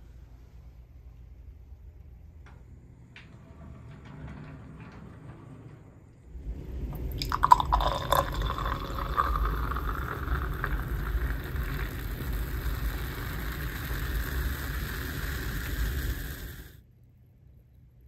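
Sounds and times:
low rumble: 0:00.9 - 0:16.8
drink bubbles fizzing: 0:06.9 - 0:16.8.

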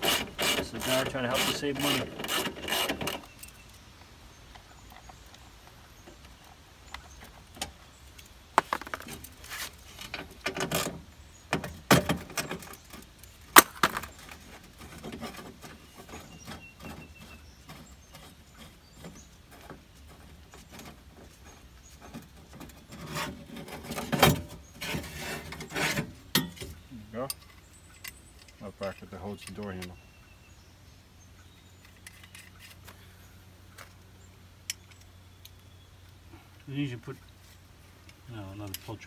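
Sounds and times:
tools clinking against metal door frame: 0:26.4 - 0:29.8.

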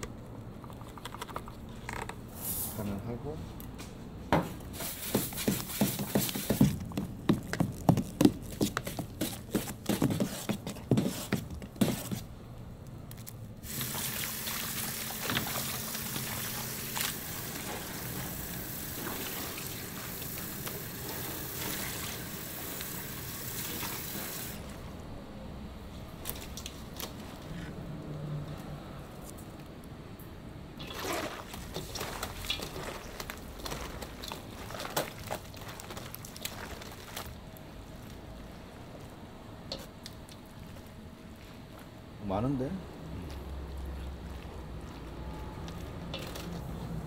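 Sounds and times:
water pouring: 0:13.6 - 0:24.6, 0:30.8 - 0:37.3.

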